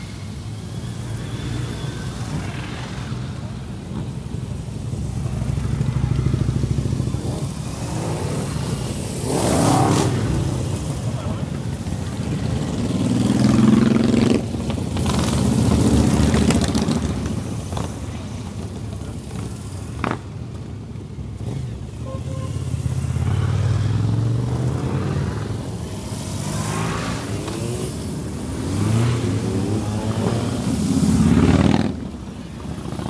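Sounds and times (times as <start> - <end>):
motorcycles riding past: 0.0 - 20.7, 21.3 - 33.0.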